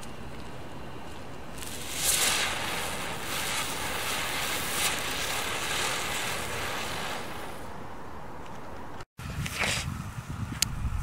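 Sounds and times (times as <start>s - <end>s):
spinner fireworks hissing: 0.0s - 8.1s.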